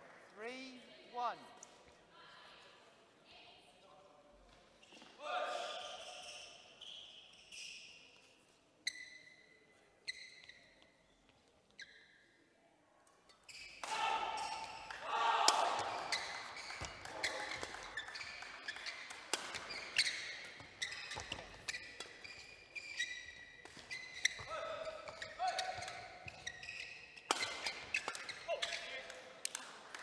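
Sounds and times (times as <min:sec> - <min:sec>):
shoes squeaking on court floor: 0:04.6 - 0:12.4, 0:13.3 - 0:15.0, 0:15.7 - 0:29.3
rackets hitting shuttlecock: 0:13.7 - 0:30.0.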